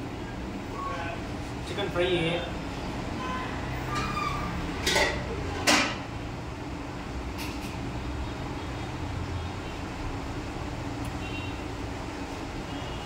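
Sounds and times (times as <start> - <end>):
dishes clattering: 4.8 - 6.0.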